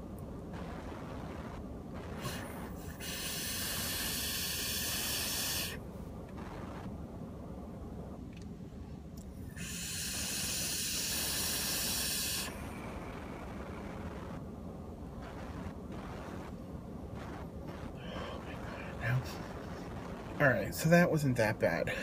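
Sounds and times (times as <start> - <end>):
vape draw hissing: 2.1 - 5.8, 9.5 - 13.5.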